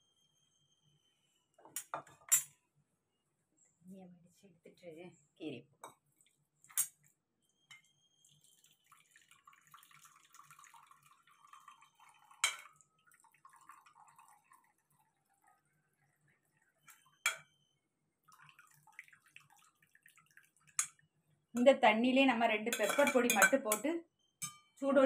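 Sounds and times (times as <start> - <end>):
water trickling into steel bowl: 7.7 - 17.6, 18.2 - 21.8, 22.6 - 23.9
ladle clinking against pot: 22.7 - 24.7.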